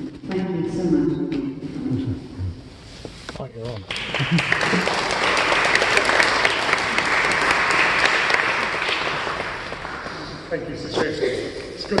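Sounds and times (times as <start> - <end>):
audience applauding: 3.9 - 10.6.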